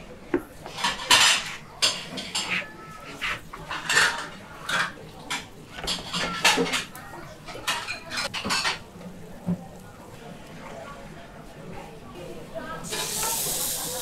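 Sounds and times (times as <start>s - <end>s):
dishes and utensils clattering: 0.3s - 9.7s, 12.8s - 14.0s.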